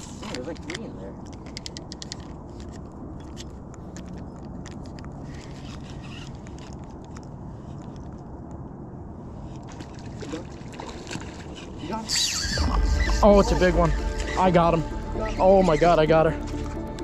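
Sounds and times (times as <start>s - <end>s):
low rumble: 12.1s - 17.0s.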